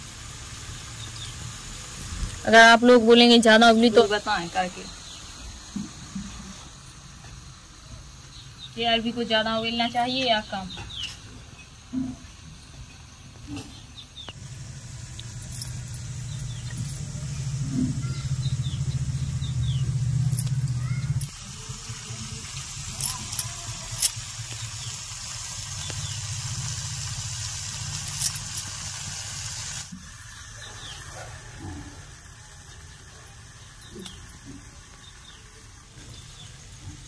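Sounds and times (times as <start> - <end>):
hiss: 0.0 - 9.6, 20.8 - 37.0
low rumble: 14.4 - 21.3.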